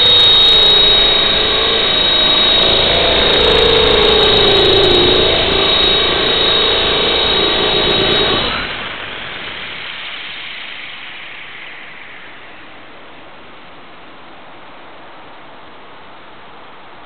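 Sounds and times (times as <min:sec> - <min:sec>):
rc helicopter motor whine: 0:00.0 - 0:09.8
rotors spinning down whoosh: 0:00.0 - 0:10.6.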